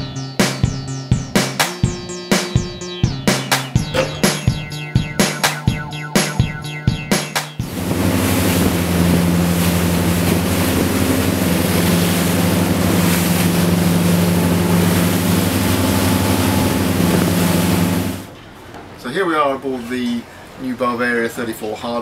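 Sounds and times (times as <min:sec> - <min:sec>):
boat engine drone: 0:02.0 - 0:18.3
rush of spray and wash: 0:07.6 - 0:18.3.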